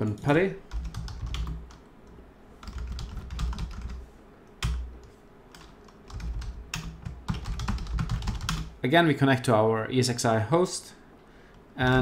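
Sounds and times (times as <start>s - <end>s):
typing on computer keyboard: 0.7s - 1.8s, 2.6s - 4.0s, 4.6s - 8.7s.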